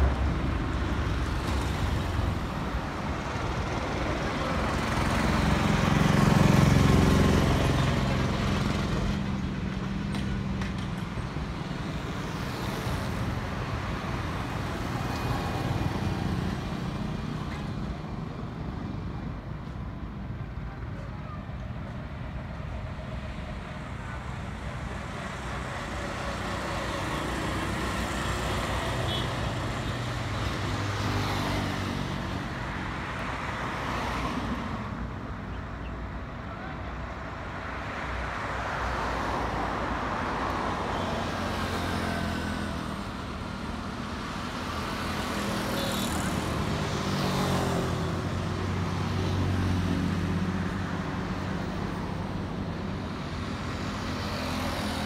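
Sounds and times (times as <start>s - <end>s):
vehicles passing: 0.0s - 55.0s.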